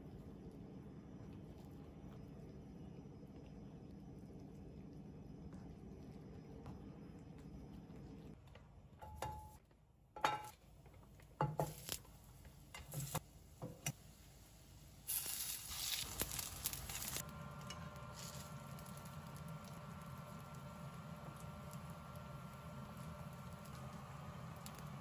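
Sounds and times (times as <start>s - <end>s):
hiss: 11.4s - 17.4s.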